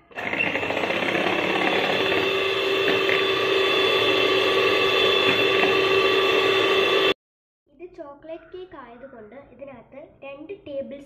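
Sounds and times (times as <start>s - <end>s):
electric hand mixer whine: 0.0s - 7.2s.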